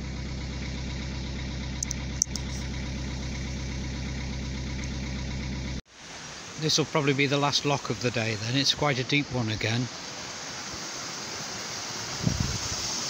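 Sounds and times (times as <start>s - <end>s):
boat engine droning: 0.0s - 5.8s.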